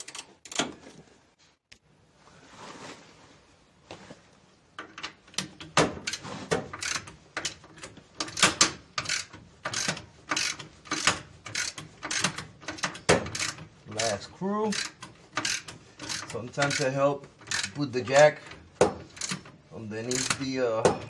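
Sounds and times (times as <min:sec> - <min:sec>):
soft rustle: 0:00.9 - 0:04.8
ratchet wrench clicking: 0:06.8 - 0:17.8, 0:19.1 - 0:19.4.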